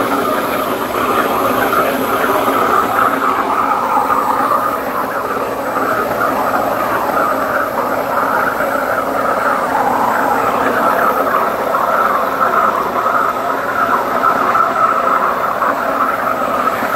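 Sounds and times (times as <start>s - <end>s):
waterjet hissing rush: 0.0s - 16.9s.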